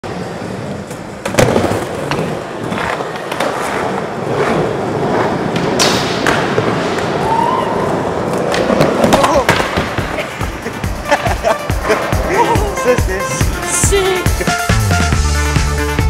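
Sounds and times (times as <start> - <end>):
skateboard wheels rolling: 0.0 - 12.8
skateboards clacking on ground: 0.1 - 12.8.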